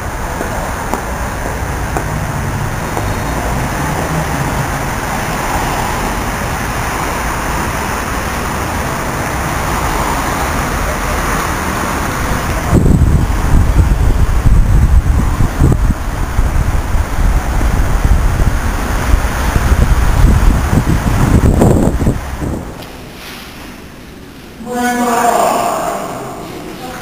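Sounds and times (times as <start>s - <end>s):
cars passing: 0.0s - 27.0s
wind rumble on microphone: 11.6s - 22.9s.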